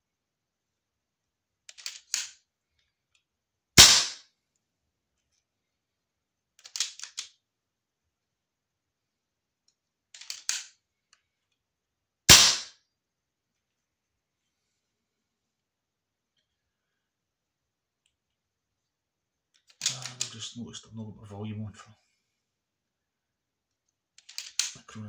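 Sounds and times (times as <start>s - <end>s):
small mechanical clicks: 1.7s - 2.4s
air rifle shots: 3.8s - 4.2s, 12.3s - 12.7s.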